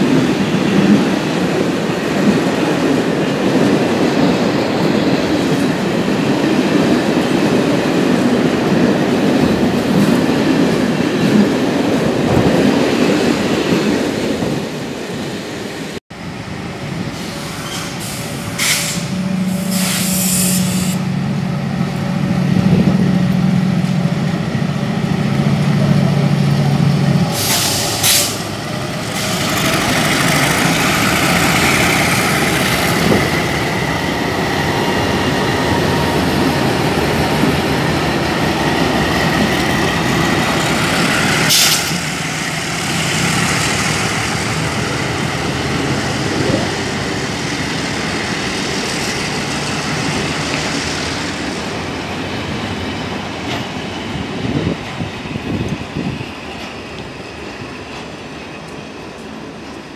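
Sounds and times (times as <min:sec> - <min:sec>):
train wheels rumbling on rails: 0:00.0 - 0:59.9
short bursts of hiss: 0:17.2 - 0:21.0.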